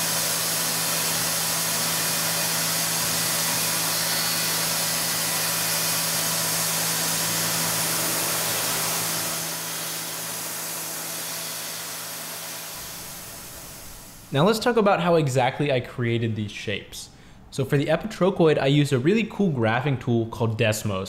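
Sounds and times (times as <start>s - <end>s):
hiss of metal cutting: 0.0s - 14.4s
mill spindle hum: 0.0s - 14.4s.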